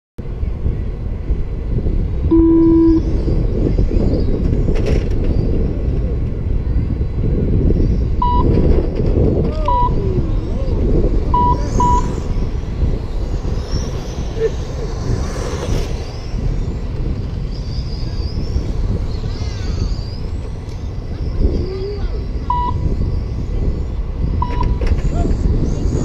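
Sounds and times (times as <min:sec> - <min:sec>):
low outdoor rumble: 0:00.2 - 0:26.0
short high electronic beeps: 0:02.3 - 0:03.1, 0:11.4 - 0:12.2
held electronic tone: 0:02.3 - 0:03.2, 0:09.7 - 0:20.5, 0:22.4 - 0:22.9.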